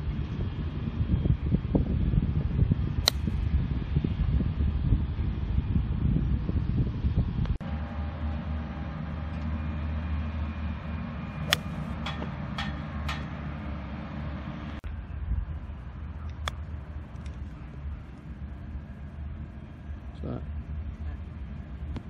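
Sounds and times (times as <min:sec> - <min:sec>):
golf clubs striking balls: 0:03.1 - 0:03.4, 0:11.4 - 0:13.4
low rumble: 0:13.5 - 0:22.0.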